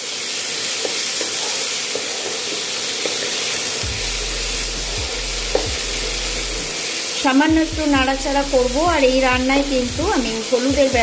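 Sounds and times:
onions and potatoes sizzling in oil: 0.0s - 11.0s
wooden spatula knocking on pan: 5.4s - 6.2s.

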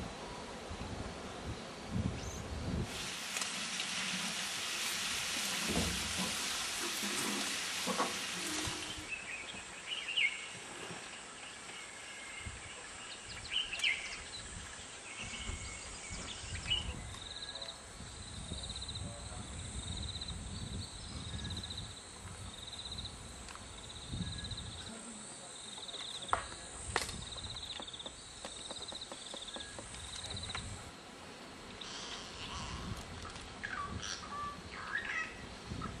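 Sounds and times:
dense hiss: 2.0s - 21.3s.

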